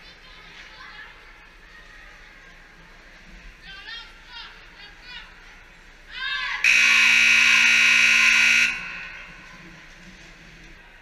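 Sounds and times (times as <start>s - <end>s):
scoreboard horn buzzing: 6.6s - 9.7s.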